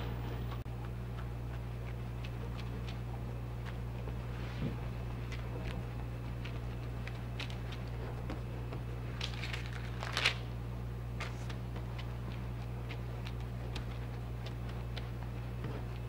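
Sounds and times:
low hum: 0:00.0 - 0:16.0
hands patting dough: 0:00.8 - 0:16.0
baking paper rustling: 0:04.2 - 0:13.2.

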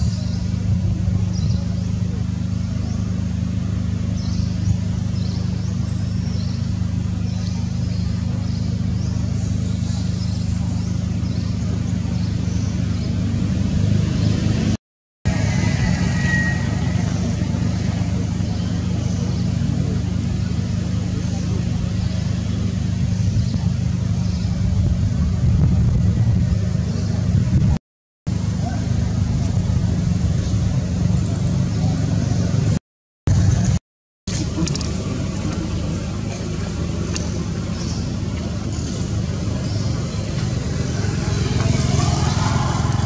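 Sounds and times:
low motor hum: 0:00.0 - 0:43.0
steady low rumble: 0:16.7 - 0:27.8.

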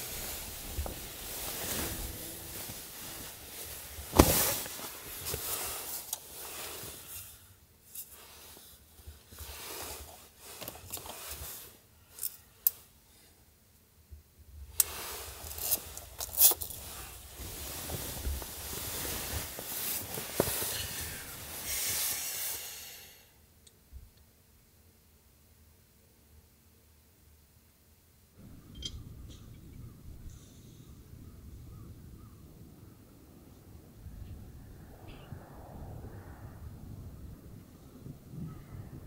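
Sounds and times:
bedding rustling: 0:00.0 - 0:07.2, 0:14.9 - 0:22.5.

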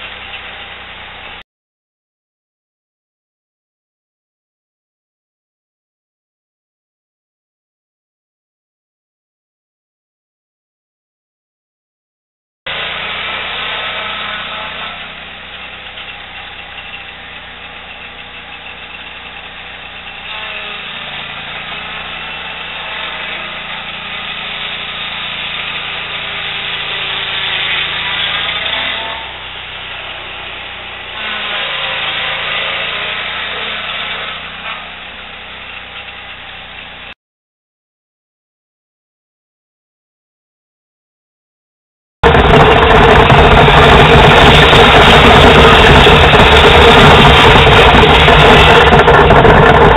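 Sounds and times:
sawmill engine running under load: 0:00.0 - 0:01.4, 0:12.7 - 0:37.1, 0:42.2 - 0:49.9.

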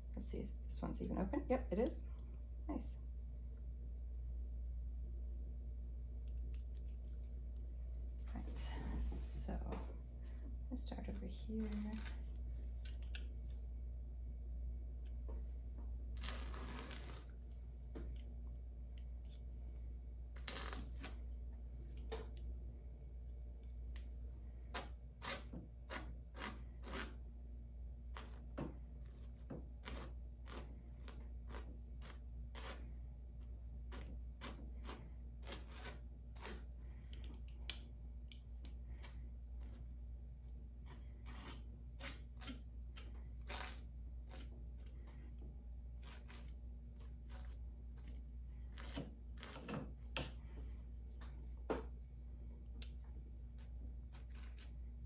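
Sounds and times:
low hum: 0:00.0 - 0:55.0.

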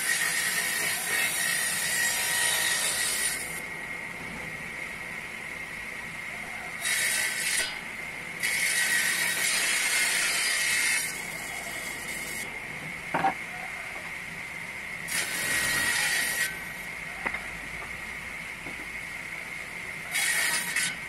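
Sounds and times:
table saw cutting wood: 0:00.0 - 0:03.6, 0:06.8 - 0:07.8, 0:08.4 - 0:12.5, 0:15.1 - 0:16.9, 0:20.1 - 0:21.0
table saw whine: 0:00.0 - 0:03.8, 0:06.6 - 0:14.1, 0:15.0 - 0:18.1, 0:19.9 - 0:21.0.

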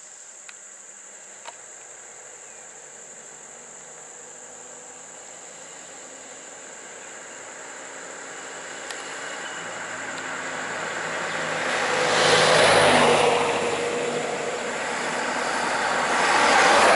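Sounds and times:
high insect buzz: 0:00.0 - 0:16.9
car driving past: 0:08.2 - 0:16.9.

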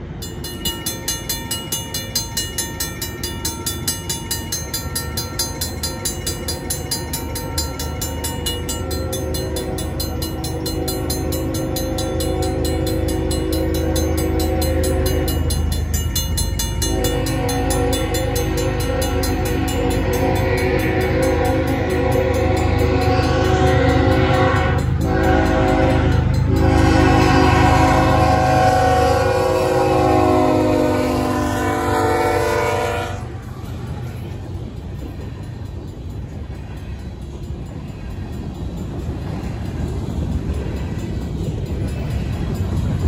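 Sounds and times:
crossing bell ringing: 0:00.0 - 0:43.0
train rumble: 0:00.0 - 0:43.0
locomotive horn: 0:08.3 - 0:15.9, 0:16.7 - 0:33.4.

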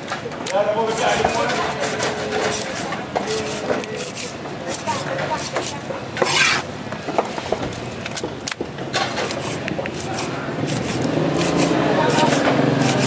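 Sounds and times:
knife scraping fish: 0:01.6 - 0:06.8, 0:09.0 - 0:13.0.

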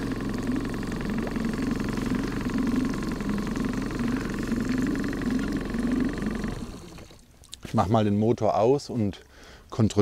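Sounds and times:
boat motor running: 0:00.0 - 0:07.2.

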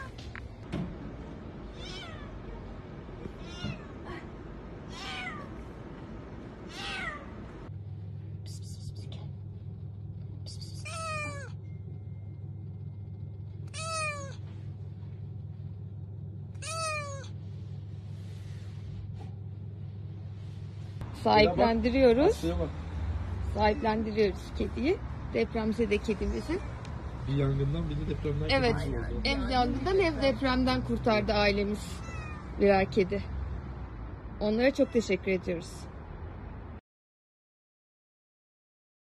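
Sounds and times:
kitten meowing: 0:01.7 - 0:04.1, 0:04.9 - 0:05.5, 0:06.7 - 0:07.3, 0:10.8 - 0:11.6, 0:13.7 - 0:14.4, 0:16.6 - 0:17.3, 0:31.9 - 0:32.5.

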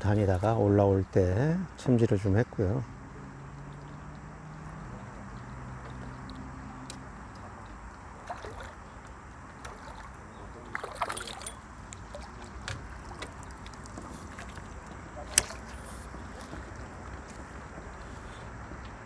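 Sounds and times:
fish splashing at surface: 0:08.2 - 0:17.1.

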